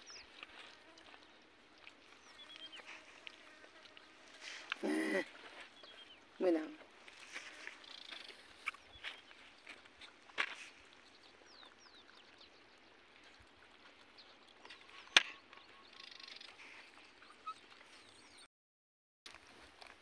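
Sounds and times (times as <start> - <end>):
faint bird chirps: 2.1 - 3.0, 14.7 - 18.5.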